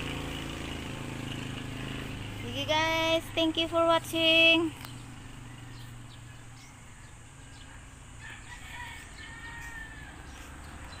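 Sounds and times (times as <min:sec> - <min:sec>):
bird chirps: 0:04.4 - 0:11.0
distant rooster crowing: 0:05.3 - 0:10.6.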